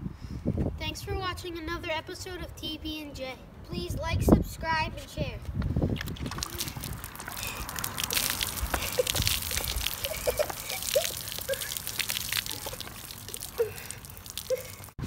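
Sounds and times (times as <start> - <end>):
liquid splashing on pavement: 5.9 - 15.0
fizzing cola pouring: 6.0 - 14.9
patter of drips: 6.0 - 15.0.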